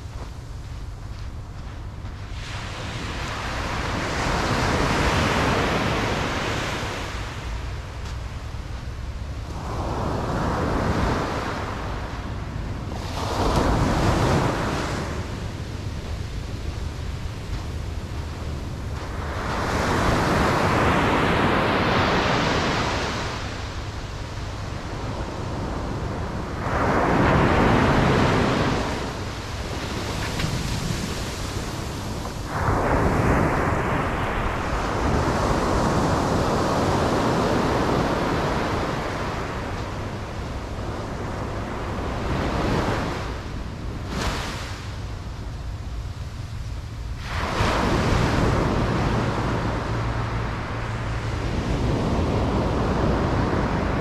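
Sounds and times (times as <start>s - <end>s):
waves breaking on a beach: 0.0s - 54.0s.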